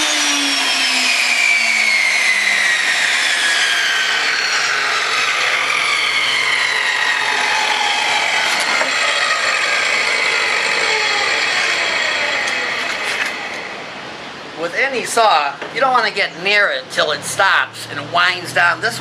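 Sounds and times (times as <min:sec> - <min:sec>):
table saw motor winding down: 0:00.0 - 0:14.5.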